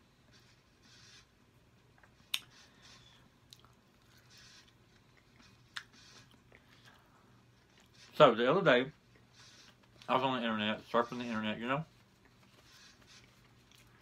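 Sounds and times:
person chewing food: 0:01.8 - 0:08.0, 0:13.2 - 0:14.0.

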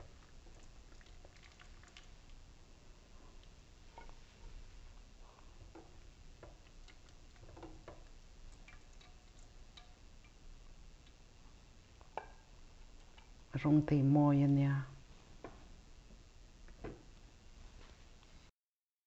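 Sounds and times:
tongs clicking against plate and pot: 0:05.7 - 0:10.4, 0:12.0 - 0:13.4.

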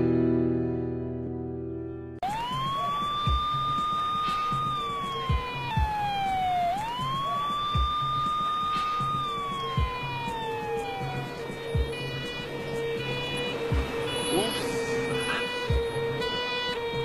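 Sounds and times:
ambulance siren wailing: 0:02.2 - 0:17.0
low thuds: 0:11.7 - 0:17.0.

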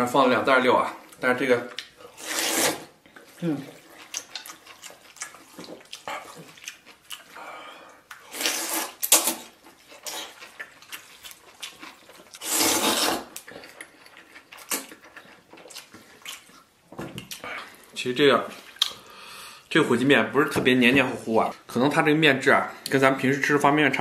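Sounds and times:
person slurping noodles: 0:02.0 - 0:02.9, 0:08.3 - 0:10.4, 0:12.4 - 0:13.4.

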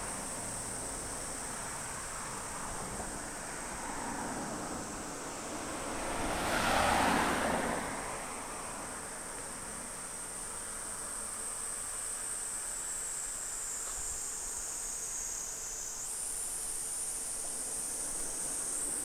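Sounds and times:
car passing on road: 0:00.0 - 0:11.5, 0:16.5 - 0:19.0
high-pitched insect trill: 0:00.0 - 0:19.0.

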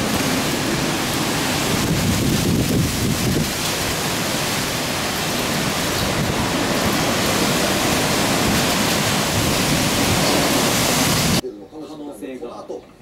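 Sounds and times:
heavy rain: 0:00.0 - 0:11.4
strong wind: 0:00.0 - 0:11.4.

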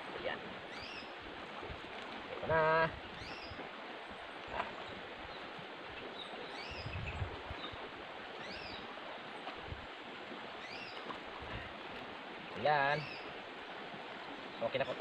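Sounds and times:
river water rushing: 0:00.0 - 0:15.0
birds chirping: 0:00.7 - 0:01.2, 0:02.6 - 0:07.8, 0:08.4 - 0:11.8, 0:12.6 - 0:15.0.

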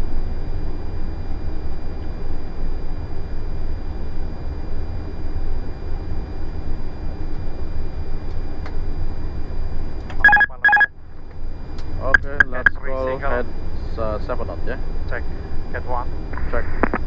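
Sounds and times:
cockpit airflow and engine noise: 0:00.0 - 0:17.0
short electronic beeps: 0:10.2 - 0:10.9.

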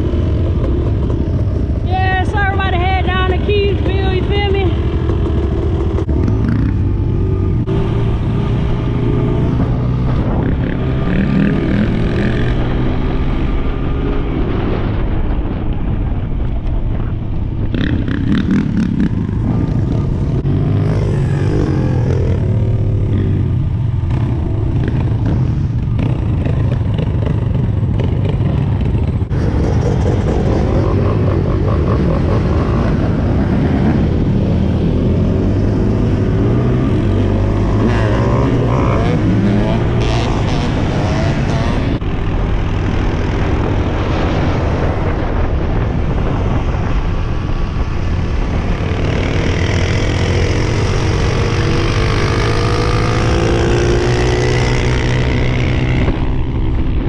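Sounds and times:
other dirt bikes and atvs running: 0:00.0 - 0:57.0
dirt bike engine revving: 0:03.2 - 0:13.5, 0:29.3 - 0:43.6, 0:48.6 - 0:56.6.

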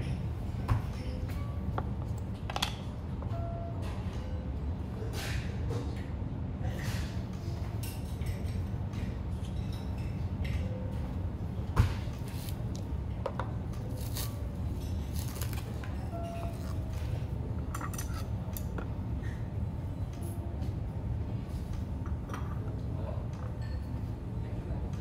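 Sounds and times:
low room hum: 0:00.0 - 0:25.0
dishes and utensils clinking: 0:06.7 - 0:11.2, 0:13.2 - 0:19.4, 0:21.6 - 0:24.1.

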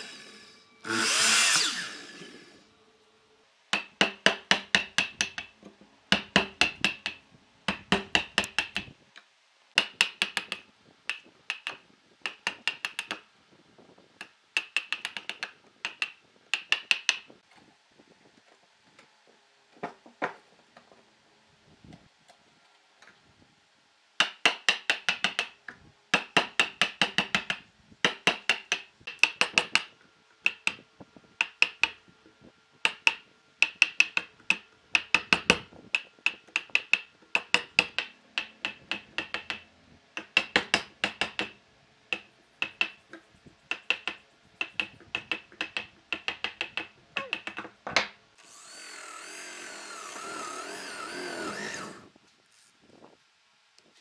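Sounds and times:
power drill running: 0:00.0 - 0:02.7, 0:48.4 - 0:52.1
chisel striking wooden log: 0:03.7 - 0:05.5, 0:06.1 - 0:08.9, 0:09.8 - 0:13.2, 0:14.2 - 0:17.3, 0:24.2 - 0:25.5, 0:26.2 - 0:30.8, 0:31.4 - 0:32.0, 0:32.8 - 0:39.6, 0:40.2 - 0:43.0, 0:43.7 - 0:48.1.

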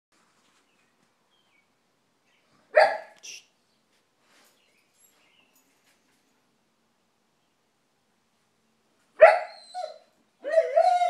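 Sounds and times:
dog barking: 0:02.7 - 0:03.2, 0:09.2 - 0:09.6.

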